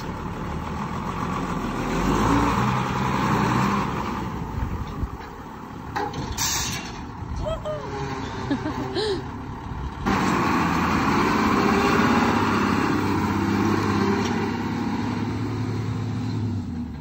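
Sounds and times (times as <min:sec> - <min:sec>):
truck diesel engine driving away: 0:00.0 - 0:17.0.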